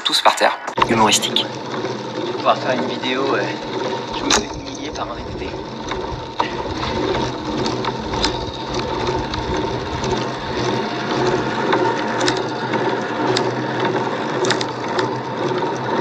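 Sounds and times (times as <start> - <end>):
bicycle drivetrain whirring: 0.8 - 16.0
light bicycle clicks: 5.8 - 11.4.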